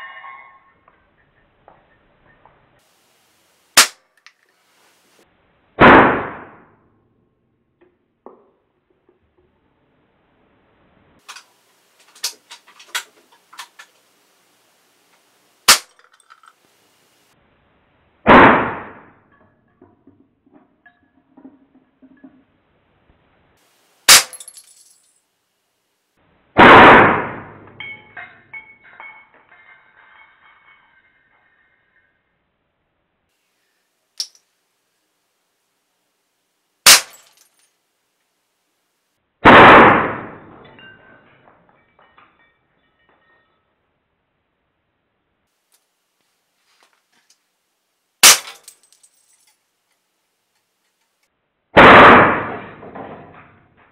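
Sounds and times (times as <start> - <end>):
air rifle shot crack: 5.8 - 6.7, 18.3 - 19.1, 26.6 - 27.7, 39.4 - 40.4, 51.8 - 52.6
loud blast: 18.3 - 19.1, 26.6 - 27.7, 39.4 - 40.4, 51.8 - 52.6.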